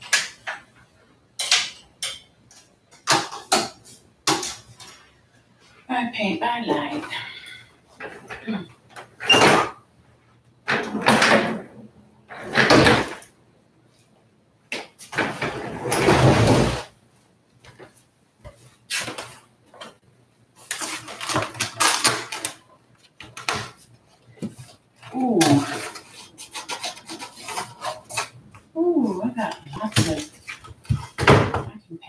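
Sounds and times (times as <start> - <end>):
office chair moving: 15.0 - 17.0.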